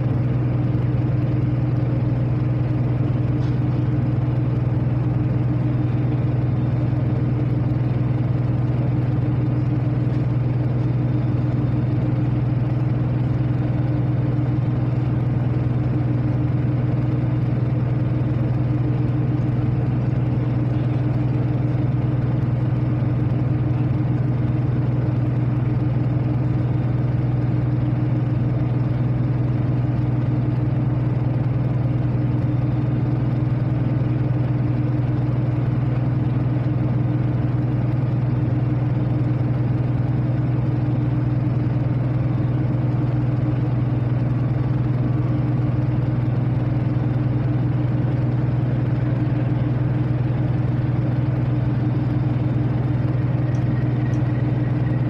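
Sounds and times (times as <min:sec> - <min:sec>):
ship diesel engine droning: 0:00.0 - 0:55.0.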